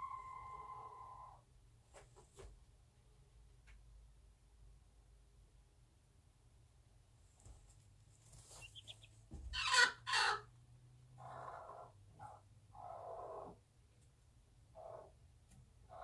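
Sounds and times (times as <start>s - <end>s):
chickens clucking: 8.5s - 10.5s.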